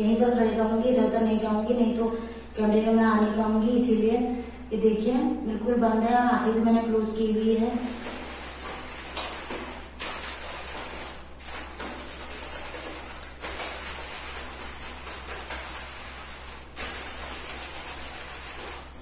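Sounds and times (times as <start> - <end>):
low steady hum: 0.0 - 19.0
hands scrubbing wet hair: 7.4 - 19.0.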